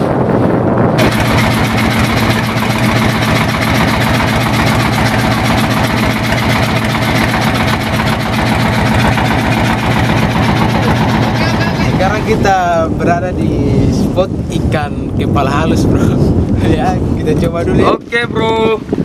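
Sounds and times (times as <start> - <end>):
boat engine droning: 0.9 - 12.6.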